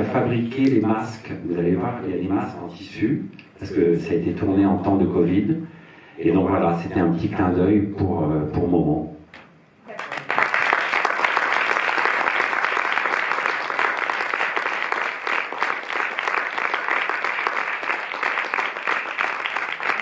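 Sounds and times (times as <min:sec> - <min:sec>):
audience applauding: 0:09.9 - 0:20.0.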